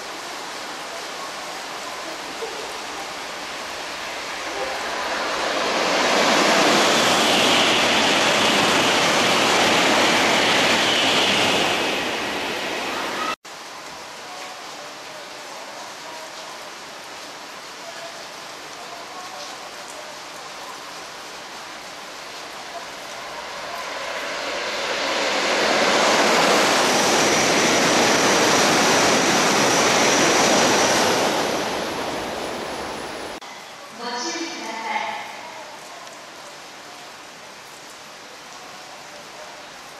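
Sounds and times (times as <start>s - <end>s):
rain hiss: 0.0s - 39.9s
train passing at speed: 1.6s - 13.4s, 22.4s - 35.4s.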